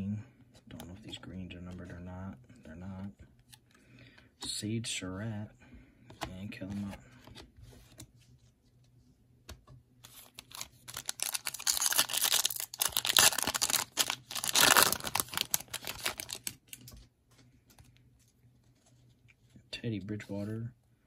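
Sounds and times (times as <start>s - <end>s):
foil wrapper tearing and crinkling: 10.2s - 16.6s.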